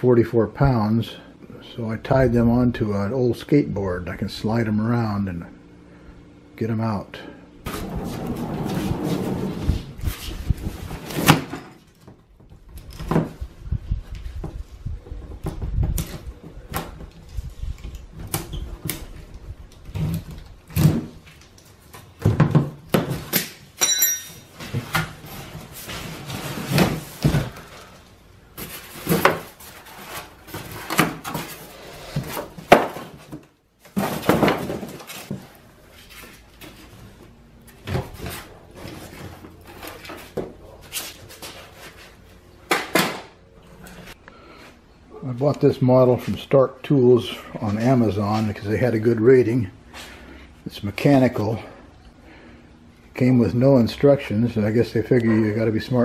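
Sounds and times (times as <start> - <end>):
metallic ring: 23.8 - 24.6.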